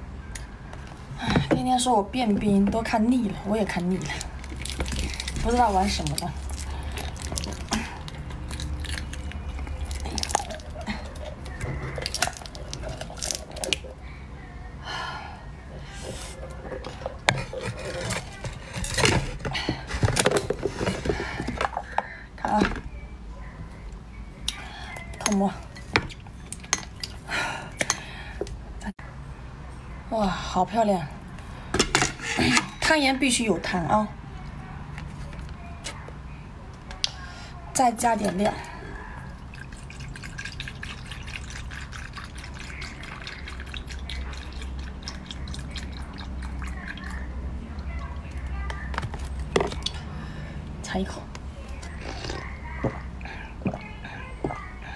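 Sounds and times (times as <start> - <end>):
milk pouring and splashing on ice: 3.6 - 14.0, 39.4 - 48.2.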